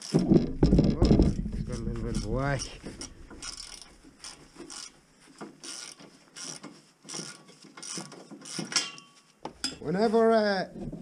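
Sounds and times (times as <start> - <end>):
ratchet spanner clicking: 1.7 - 4.9, 5.6 - 8.9.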